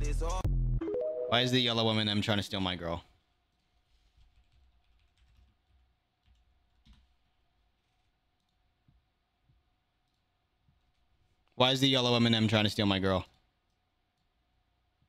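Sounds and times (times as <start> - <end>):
keyboard typing: 4.2 - 7.1.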